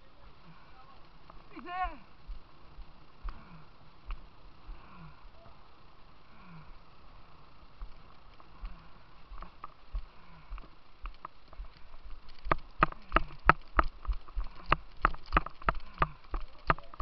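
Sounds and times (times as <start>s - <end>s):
hurried footsteps on concrete: 7.8s - 16.5s.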